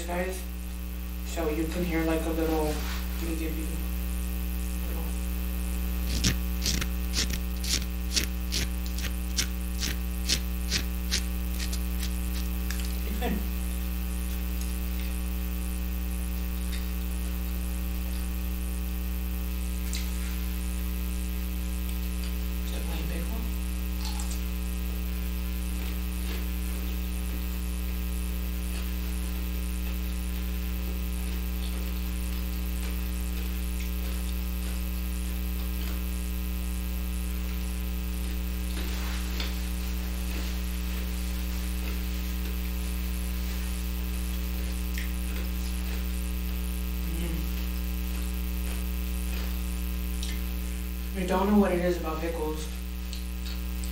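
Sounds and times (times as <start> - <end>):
electrical mains hum: 0.0 - 53.9
faint chewing sounds: 6.1 - 13.1, 25.2 - 36.4, 37.3 - 50.8.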